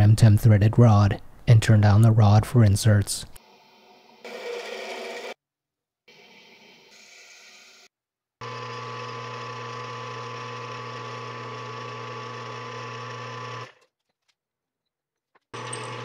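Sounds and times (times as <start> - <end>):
metal lathe motor hum and whine: 8.4 - 13.7.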